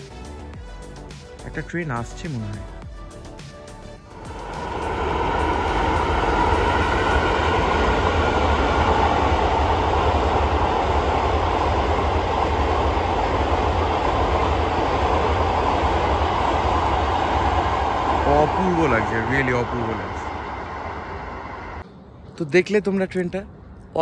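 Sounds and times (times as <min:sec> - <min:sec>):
train rumbling on rails: 0:04.0 - 0:21.8.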